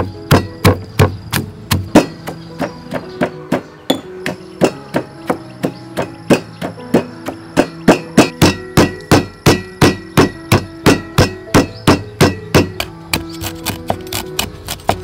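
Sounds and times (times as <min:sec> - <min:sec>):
pestle pounding in stone mortar: 0:00.0 - 0:15.0.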